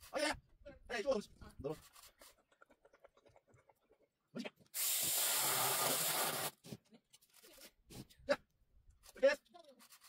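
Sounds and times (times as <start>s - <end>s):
aerosol spray can hissing: 4.8s - 6.6s.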